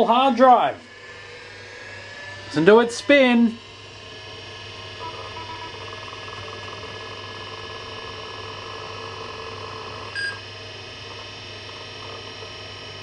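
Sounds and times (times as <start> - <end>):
low hum: 0.0 - 8.0
hard drive whine: 0.0 - 13.0.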